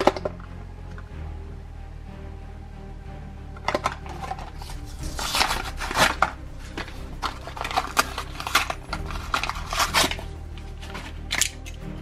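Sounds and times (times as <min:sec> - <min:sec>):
plastic packaging being torn open: 0:04.6 - 0:11.7.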